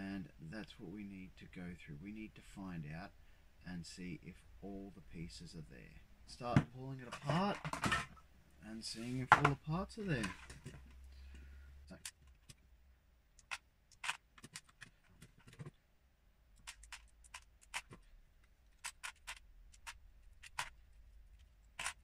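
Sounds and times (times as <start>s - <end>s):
plastic bricks clicking and snapping: 18.8s - 20.8s.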